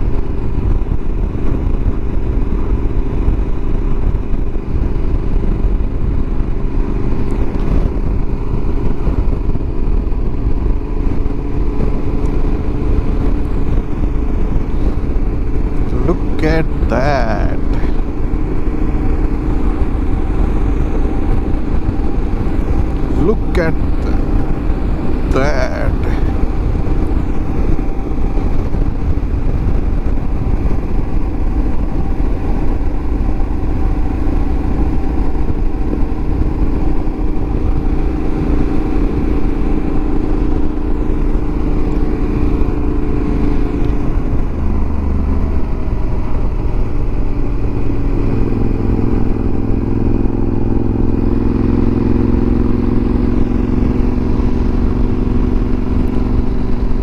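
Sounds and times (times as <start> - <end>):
motorcycle engine cruising: 0.0 - 57.0
wind rushing over microphone: 0.0 - 57.0.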